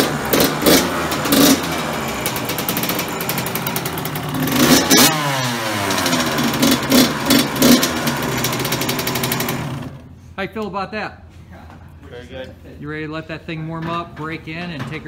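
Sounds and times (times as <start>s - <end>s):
dirt bike engine revving: 0.0s - 10.1s.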